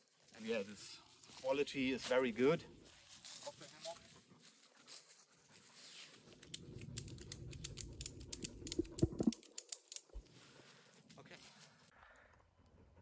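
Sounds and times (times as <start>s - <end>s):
footsteps on dry leaves: 0.0s - 6.4s
strap clicking and rustling: 6.4s - 10.2s.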